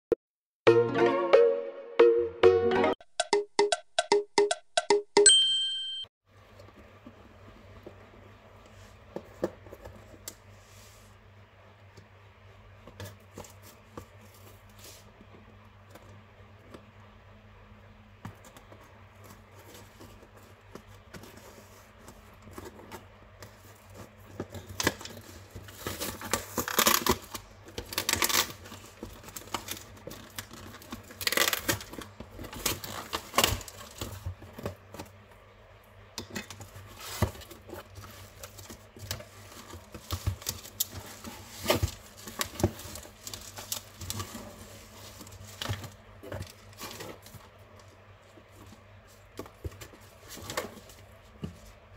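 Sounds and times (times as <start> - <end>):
cardboard flaps rustling: 36.6 - 51.9.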